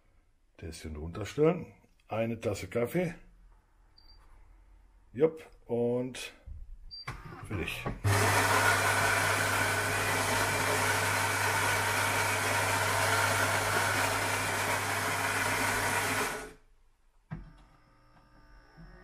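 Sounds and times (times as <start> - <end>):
coffee grinder grinding beans: 8.1 - 16.6.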